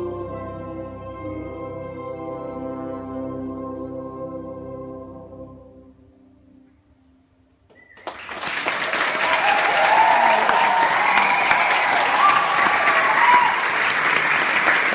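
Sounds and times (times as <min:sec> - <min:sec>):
audience applauding: 0:07.8 - 0:14.9
voices cheering: 0:08.7 - 0:14.9.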